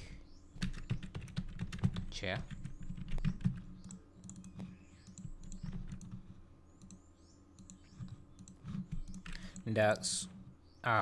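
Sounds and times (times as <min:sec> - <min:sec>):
keyboard typing: 0:00.6 - 0:07.0, 0:07.6 - 0:09.7
mouse clicking: 0:03.1 - 0:09.7.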